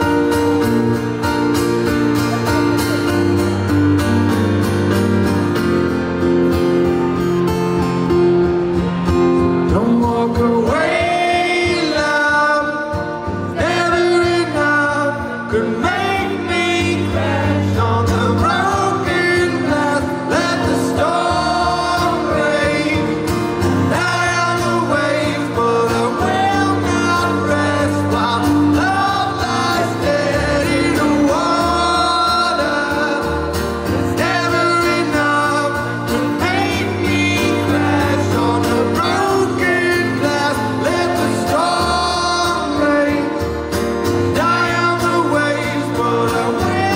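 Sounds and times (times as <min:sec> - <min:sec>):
strummed acoustic guitar: 0:00.0 - 0:46.9
man singing: 0:09.4 - 0:46.9.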